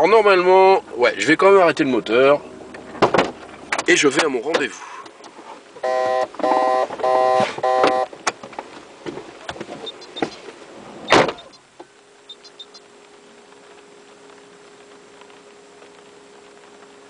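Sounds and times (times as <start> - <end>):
car door shutting: 3.0 - 4.7, 6.3 - 10.4, 11.0 - 11.5
car warning chime: 5.8 - 8.1.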